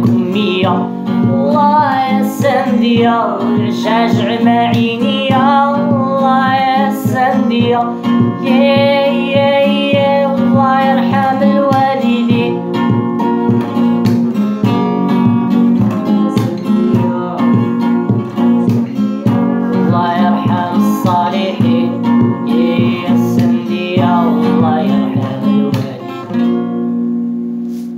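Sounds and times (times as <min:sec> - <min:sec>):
acoustic guitar strumming: 0:00.0 - 0:27.9
man singing: 0:15.8 - 0:26.3.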